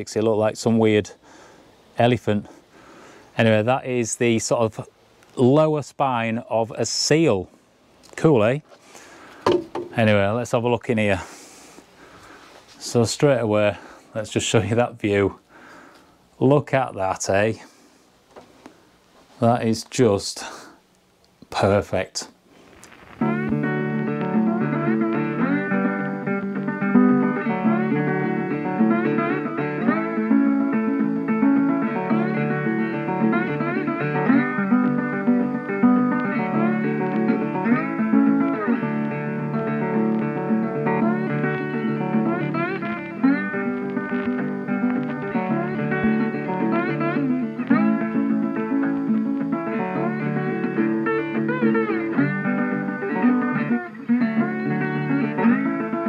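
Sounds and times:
plucked guitar music: 0:09.5 - 0:10.4, 0:22.9 - 0:56.0.

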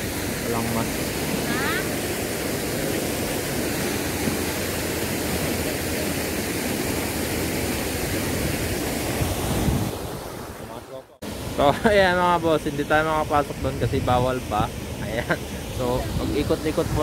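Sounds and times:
wind buffeting microphone: 0:00.0 - 0:10.6, 0:13.2 - 0:17.0.

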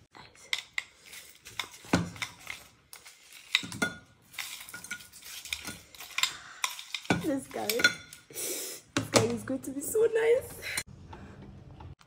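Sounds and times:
metal spoon scraping a bowl: 0:00.5 - 0:08.3.

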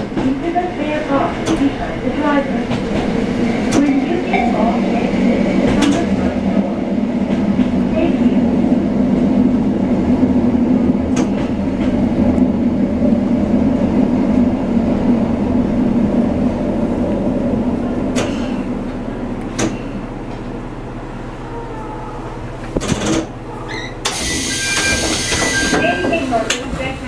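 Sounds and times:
diesel train engine running: 0:00.0 - 0:27.0.

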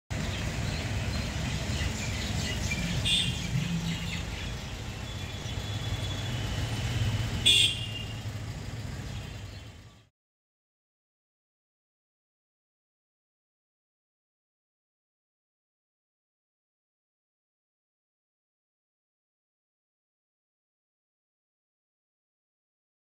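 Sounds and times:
low engine rumble: 0:00.1 - 0:10.1
car horn toots: 0:02.8 - 0:03.9, 0:07.4 - 0:08.3.

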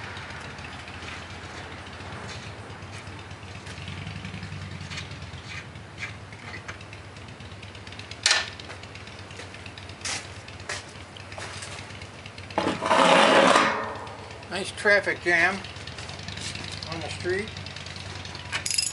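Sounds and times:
street traffic hum: 0:00.0 - 0:18.9
sharp metal clank: 0:13.4 - 0:14.2
metal clinks and knocks: 0:18.4 - 0:18.9.

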